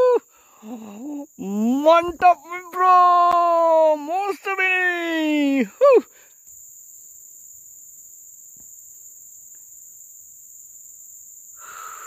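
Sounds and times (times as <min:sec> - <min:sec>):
insects droning: 0:00.0 - 0:12.0
faint ticks: 0:08.5 - 0:09.8.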